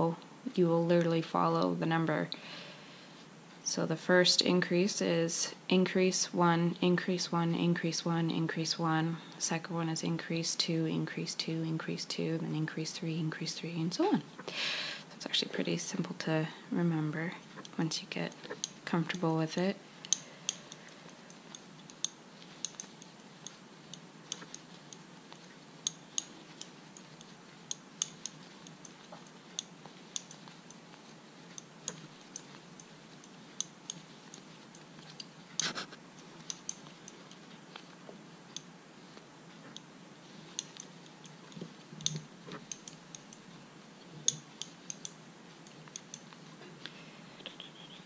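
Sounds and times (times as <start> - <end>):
crochet hook clicking: 17.6 - 19.3, 20.0 - 35.7, 36.4 - 37.5, 40.5 - 43.5, 44.2 - 46.4.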